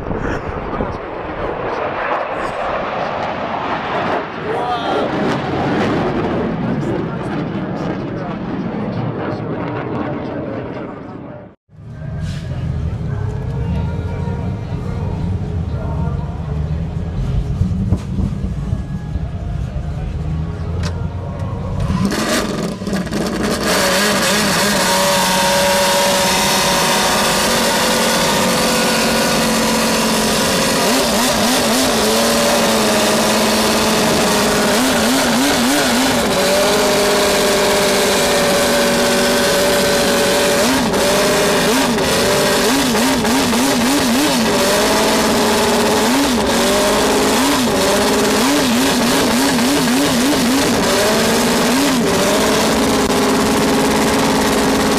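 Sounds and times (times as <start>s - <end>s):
racing car engine revving: 19.6s - 54.9s.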